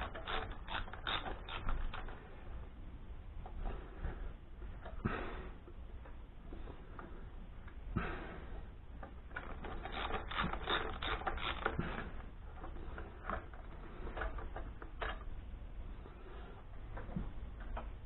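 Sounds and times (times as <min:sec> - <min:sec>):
ratchet wrench clicking: 0:00.0 - 0:02.2, 0:09.4 - 0:12.0.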